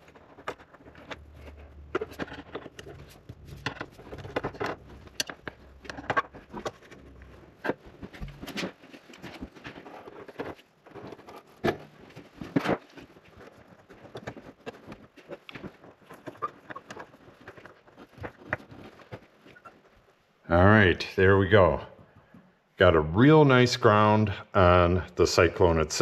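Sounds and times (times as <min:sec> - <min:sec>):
hands handling copper wire: 0:00.0 - 0:20.2.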